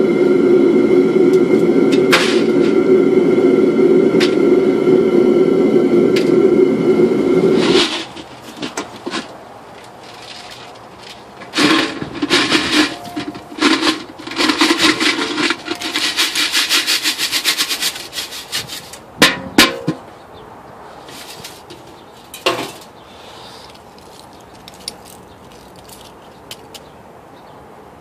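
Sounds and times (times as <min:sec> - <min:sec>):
loud steady hum: 0:00.0 - 0:18.2
metal shot scraping in a pan: 0:11.6 - 0:18.6.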